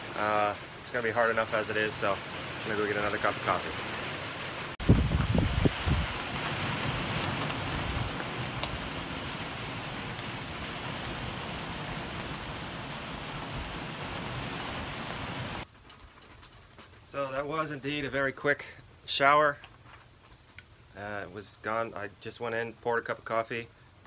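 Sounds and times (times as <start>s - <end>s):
rain falling: 0.0s - 19.8s, 20.6s - 24.0s.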